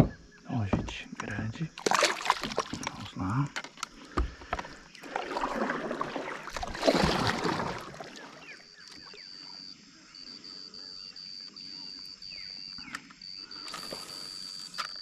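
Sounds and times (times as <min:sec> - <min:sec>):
water splashing: 0:01.8 - 0:03.3, 0:04.4 - 0:09.2.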